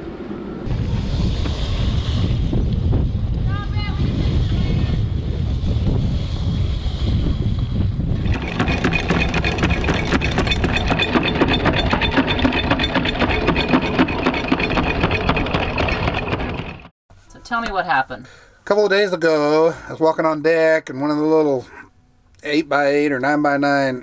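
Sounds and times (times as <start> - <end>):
wind buffeting: 0.6 - 16.9
deck machine clattering and whining: 8.1 - 16.9.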